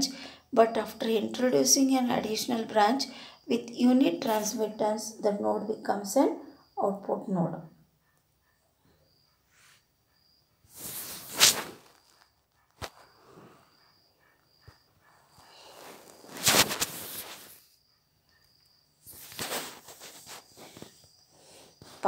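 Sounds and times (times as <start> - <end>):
phone handling scrapes: 15.7 - 17.6.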